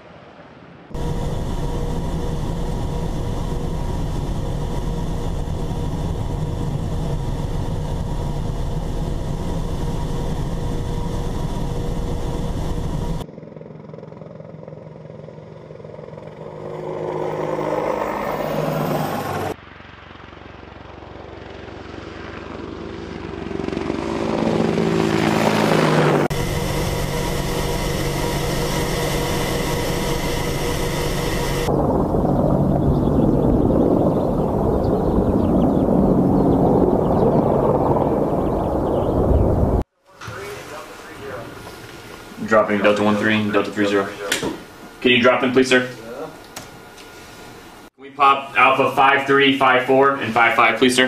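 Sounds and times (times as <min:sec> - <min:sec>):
helicopter engine drone: 0:00.9 - 0:51.0
helicopter passing by: 0:01.0 - 0:39.8.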